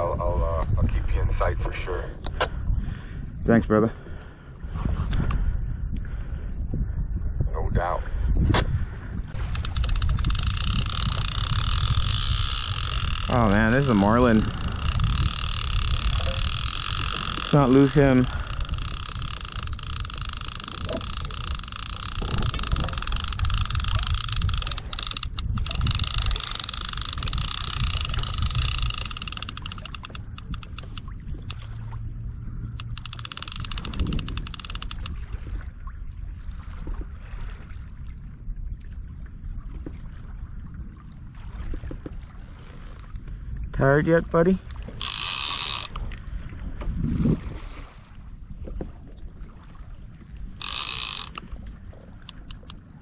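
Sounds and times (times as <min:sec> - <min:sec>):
wind and water rumble: 0:00.0 - 0:53.0
fishing reel drag clicking: 0:09.4 - 0:31.6, 0:32.7 - 0:35.2, 0:44.9 - 0:46.2, 0:50.6 - 0:51.6, 0:52.2 - 0:52.8.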